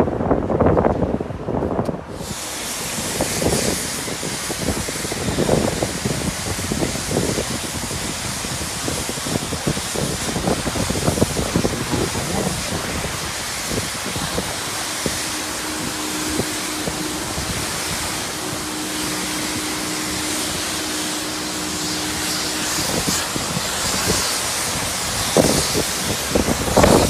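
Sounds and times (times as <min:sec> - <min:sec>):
high-pressure spray on car: 0:02.0 - 0:27.0
water spatter: 0:02.1 - 0:27.0.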